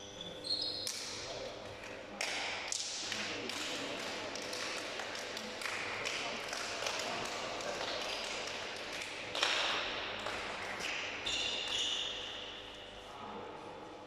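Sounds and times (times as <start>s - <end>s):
high squeak: 0.0s - 0.9s.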